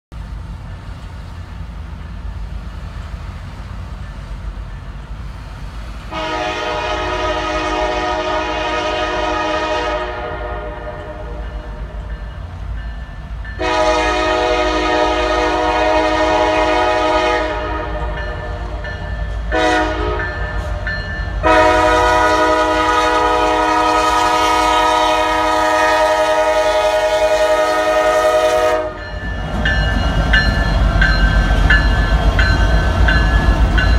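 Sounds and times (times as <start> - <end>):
low train rumble: 0.1 - 33.9
locomotive air horn blasts: 6.1 - 12.0, 13.6 - 29.2.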